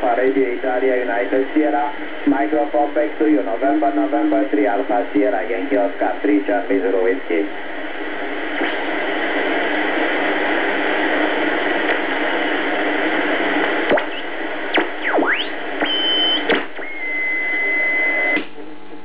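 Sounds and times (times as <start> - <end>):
radio static hiss: 0.0 - 19.0
radio tuning whistles: 13.5 - 18.4
steady radio whistle: 13.5 - 18.4.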